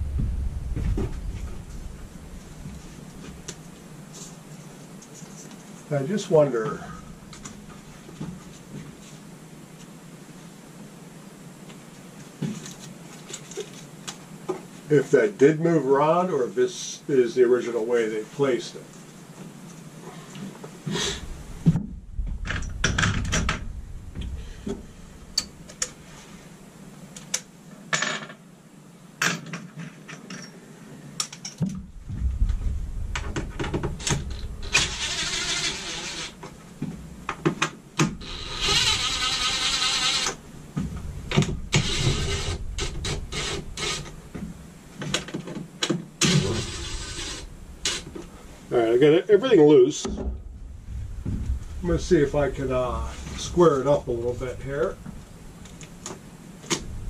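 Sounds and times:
cordless power driver running: 0:38.2 - 0:40.4.

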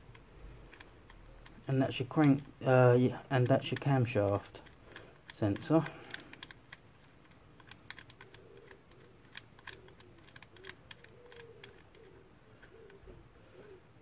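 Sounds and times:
light clicks of hand tightening bolt: 0:00.0 - 0:13.8.

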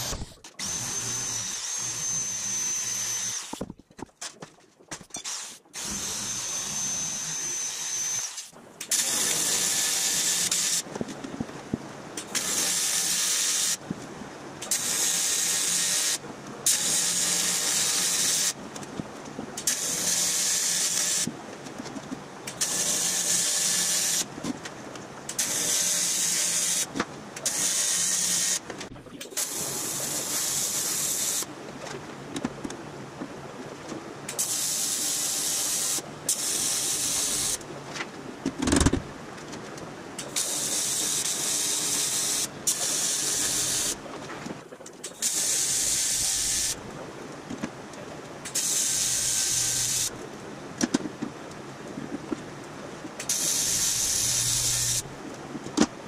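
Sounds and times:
welding arc hiss: 0:25.4 - 0:26.9, 0:29.4 - 0:31.5, 0:34.4 - 0:37.6, 0:40.2 - 0:44.0, 0:45.2 - 0:46.8, 0:48.5 - 0:50.2, 0:53.3 - 0:55.1.

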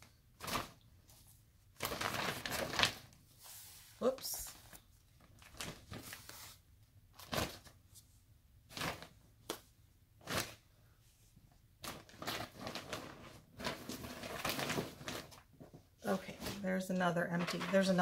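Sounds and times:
bag crinkling and rustling: 0:01.8 - 0:03.2, 0:11.8 - 0:16.6.

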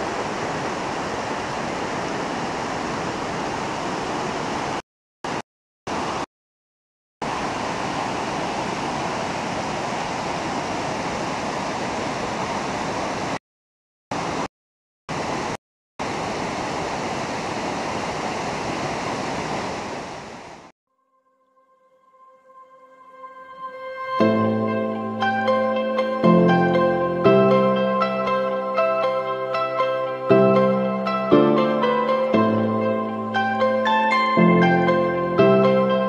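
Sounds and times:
water rushing over rocks: 0:00.0 - 0:06.3, 0:07.2 - 0:13.4, 0:14.1 - 0:14.5, 0:15.1 - 0:20.7.

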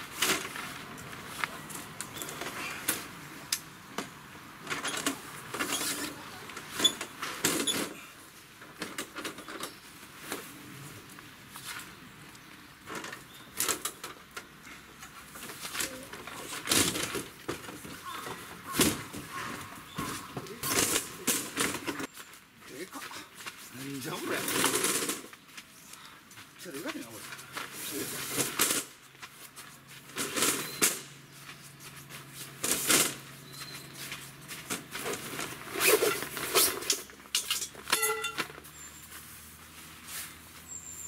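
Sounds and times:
rustling on groundsheet: 0:09.8 - 0:12.8, 0:14.6 - 0:36.8, 0:38.6 - 0:40.8.

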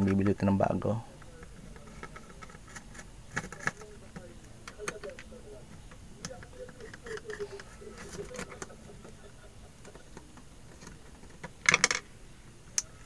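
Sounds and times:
screwdriver and plastic parts clicking: 0:02.0 - 0:08.7.

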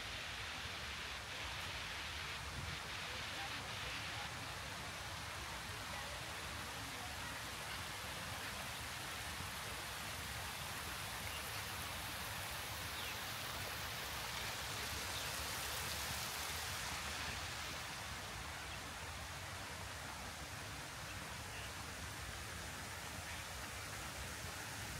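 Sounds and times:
water rushing down cascade: 0:00.0 - 0:24.9.

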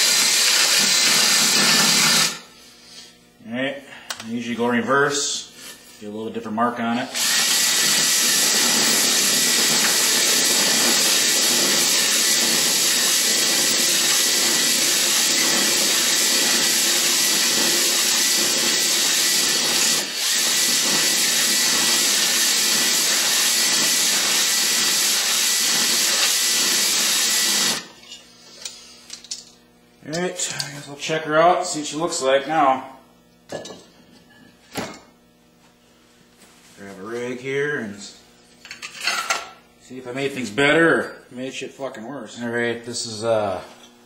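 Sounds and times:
drill honing engine cylinder: 0:00.0 - 0:02.4, 0:07.2 - 0:27.9.

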